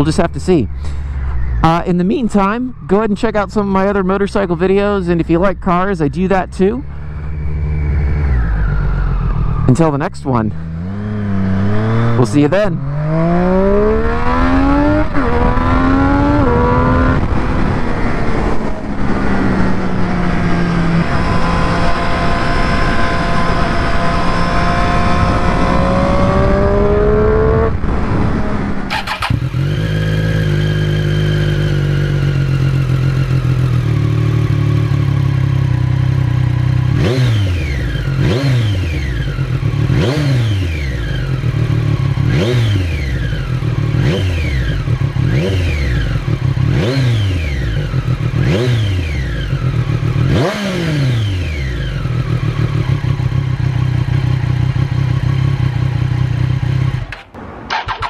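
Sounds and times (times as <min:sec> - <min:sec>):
motorcycle engine revving: 0:00.0 - 0:58.0
motorcycle engine riding and shifting: 0:00.0 - 0:58.0
motorcycle engine idling: 0:28.9 - 0:36.9, 0:39.0 - 0:40.0, 0:43.0 - 0:46.8, 0:51.5 - 0:58.0.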